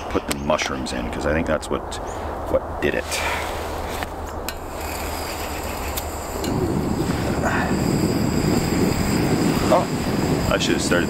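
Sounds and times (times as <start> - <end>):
gas burner rushing: 3.1 - 11.0
gas hissing: 3.2 - 11.0.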